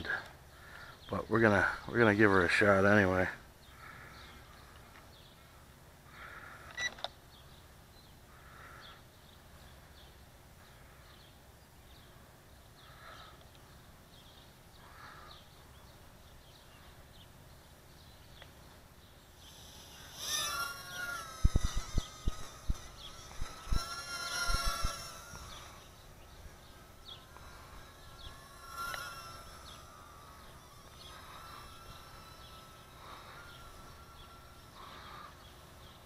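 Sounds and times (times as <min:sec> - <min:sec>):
bird calling: 0:18.0 - 0:36.0
drone motors whining: 0:19.3 - 0:36.0
high bird chirps: 0:19.4 - 0:36.0.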